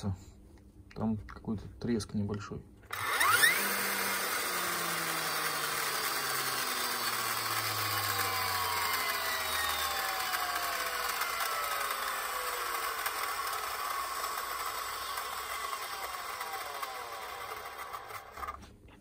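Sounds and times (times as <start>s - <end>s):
motor whine falling in pitch: 2.9s - 18.5s.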